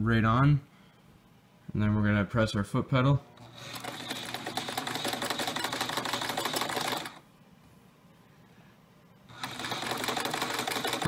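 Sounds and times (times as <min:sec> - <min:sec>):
sewing machine stitching: 0:03.4 - 0:07.2, 0:09.3 - 0:11.0.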